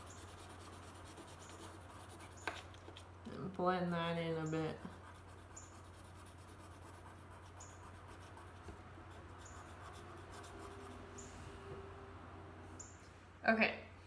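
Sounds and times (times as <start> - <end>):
colored pencil scratching paper: 0.0 - 3.1, 3.9 - 11.2
low steady hum: 0.0 - 14.0.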